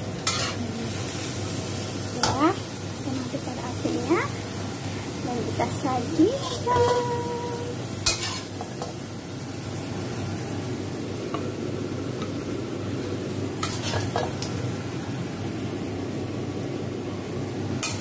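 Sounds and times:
shrimp sizzling in a wok: 0:00.0 - 0:18.0
metal spatula scraping a pan: 0:00.2 - 0:00.6, 0:06.4 - 0:07.2, 0:08.0 - 0:08.9, 0:13.6 - 0:14.5.

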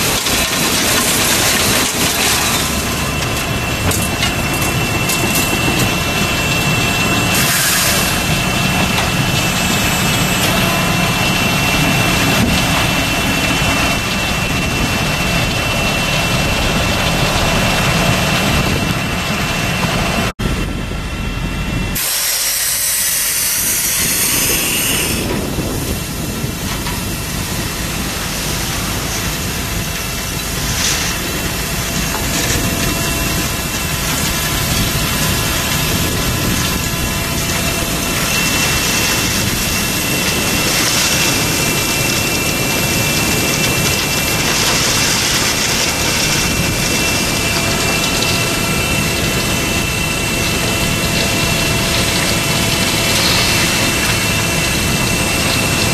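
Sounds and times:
heavy machinery running: 0:00.0 - 0:55.9
hiss burst: 0:07.3 - 0:08.3, 0:22.0 - 0:26.2.

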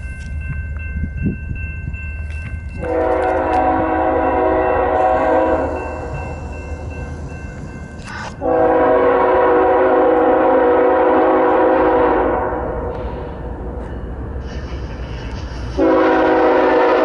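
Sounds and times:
locomotive air horn blasts: 0:02.8 - 0:05.8, 0:08.4 - 0:12.8, 0:15.8 - 0:17.0.

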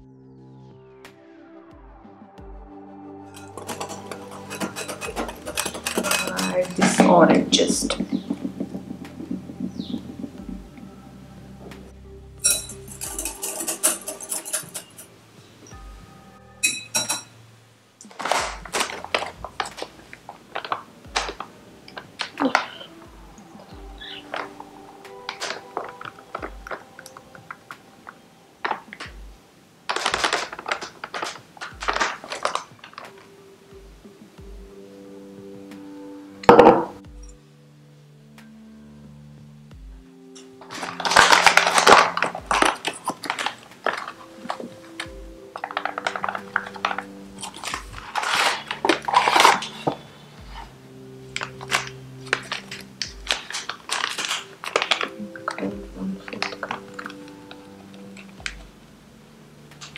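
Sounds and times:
soft background music: 0:00.0 - 0:59.9
plastic pouch crinkling: 0:18.0 - 0:22.9, 0:23.6 - 0:29.1, 0:29.9 - 0:33.3, 0:40.6 - 0:50.2, 0:51.3 - 0:58.5.

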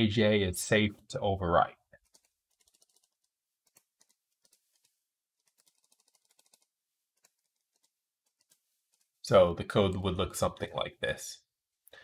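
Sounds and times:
keyboard typing: 0:02.0 - 0:09.2.

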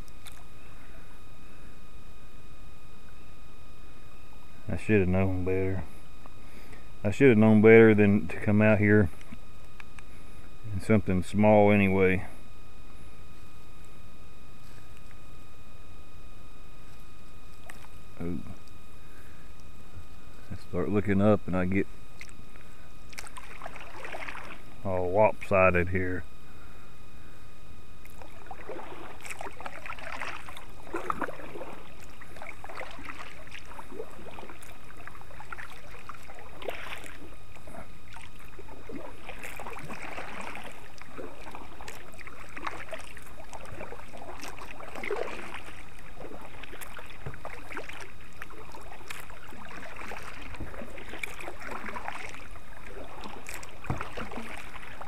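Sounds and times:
paddle splashing in water: 0:22.2 - 0:24.8, 0:28.0 - 0:55.0.

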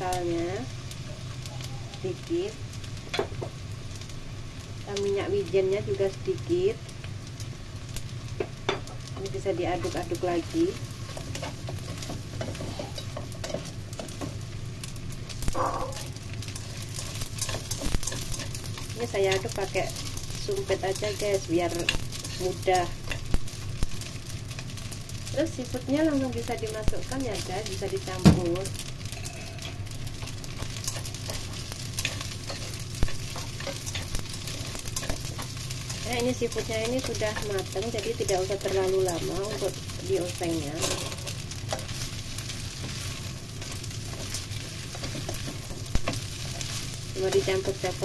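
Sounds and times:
noodles sizzling in a wok: 0:00.0 - 0:48.0
steady low hum: 0:00.0 - 0:48.0
spatula clicking and scraping pan: 0:10.7 - 0:14.5, 0:15.3 - 0:24.9, 0:28.7 - 0:48.0.

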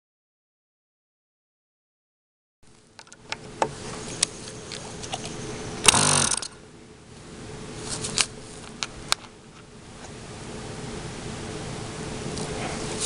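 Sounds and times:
electric starter whirring: 0:03.0 - 0:06.7.

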